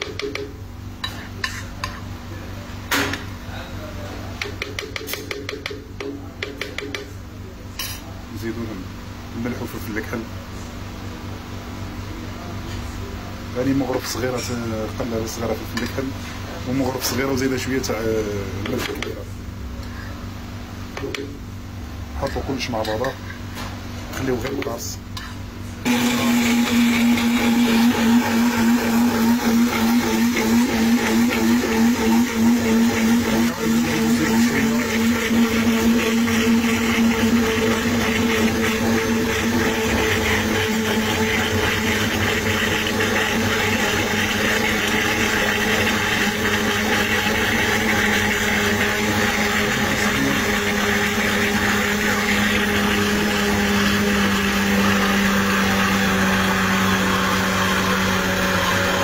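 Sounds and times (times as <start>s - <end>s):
blender motor humming: 25.8s - 59.0s.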